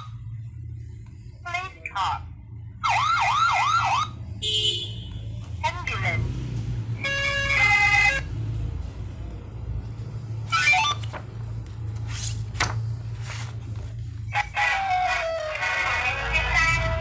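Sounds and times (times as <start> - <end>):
steady low hum: 0.0 - 3.5.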